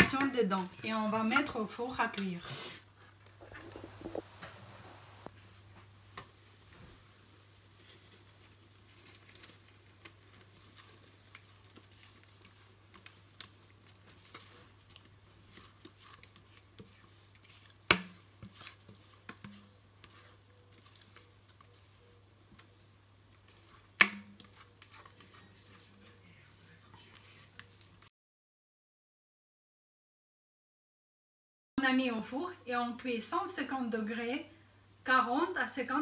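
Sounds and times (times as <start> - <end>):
spatula scraping mixing bowl: 3.4 - 5.3, 8.9 - 28.1.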